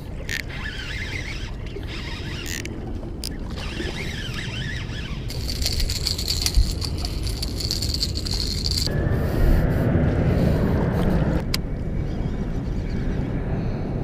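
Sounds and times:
fishing reel clicking: 0:00.2 - 0:08.9.

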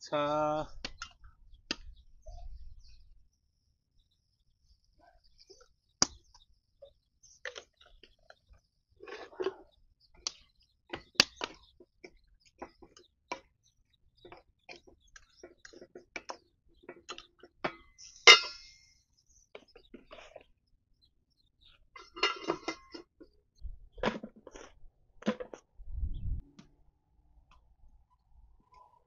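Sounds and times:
metal lid clanking on pan: 0:17.7 - 0:18.8, 0:22.0 - 0:23.1.

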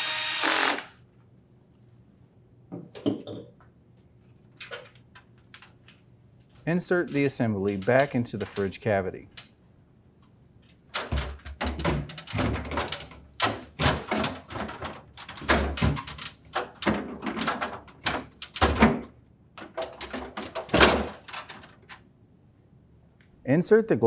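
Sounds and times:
plastic cover knocking and clicking: 0:11.0 - 0:21.5.

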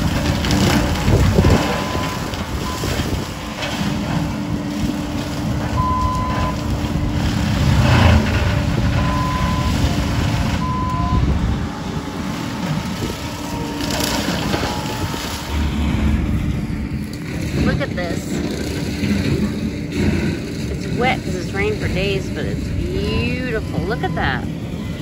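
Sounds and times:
loader engine running: 0:00.0 - 0:25.0
backup alarm beeps: 0:05.8 - 0:06.6, 0:10.6 - 0:11.3
brush crunching under cutter: 0:12.3 - 0:21.4.

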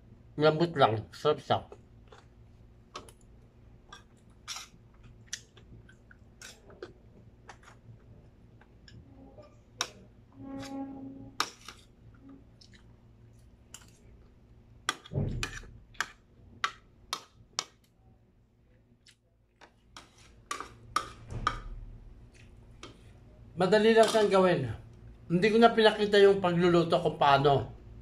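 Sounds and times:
man chewing: 0:02.0 - 0:09.0, 0:11.4 - 0:16.3, 0:19.0 - 0:20.9.

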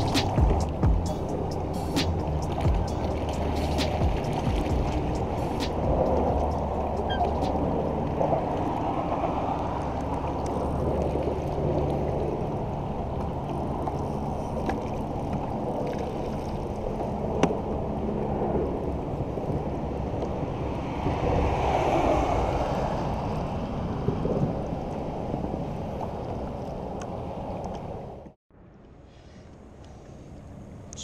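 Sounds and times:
wind on microphone: 0:00.0 - 0:28.4
water slapping against kayak hull: 0:02.2 - 0:06.6.

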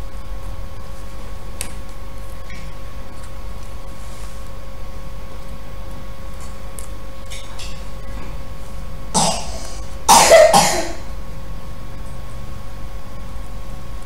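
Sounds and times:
person coughing: 0:09.2 - 0:11.1.

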